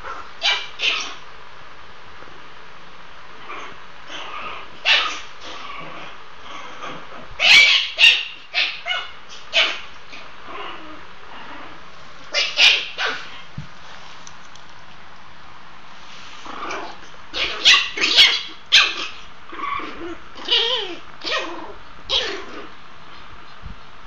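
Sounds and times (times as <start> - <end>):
puppies yipping and barking: 4.8 - 5.6, 7.4 - 10.3, 12.3 - 13.4, 17.4 - 19.3.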